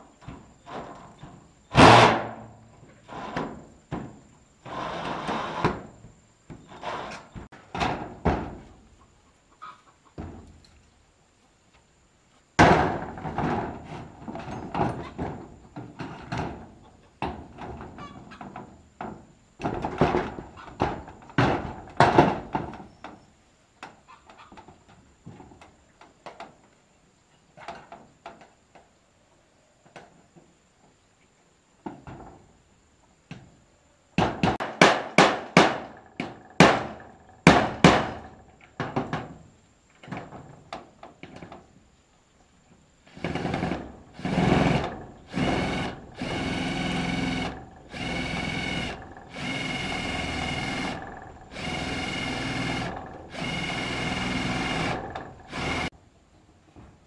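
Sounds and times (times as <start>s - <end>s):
hand tools knocking and scraping wood: 34.2s - 39.3s, 43.1s - 55.9s.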